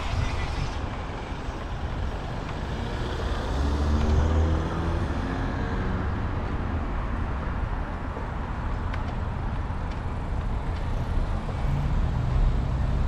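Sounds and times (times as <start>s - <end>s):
road and wind rumble: 0.0s - 13.0s
vehicle driving past: 2.2s - 6.4s.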